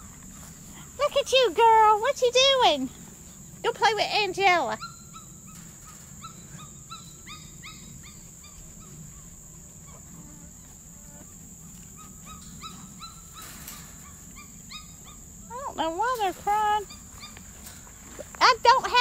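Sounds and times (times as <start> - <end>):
rustling: 0.0 - 19.0
puppies whining: 4.7 - 18.0.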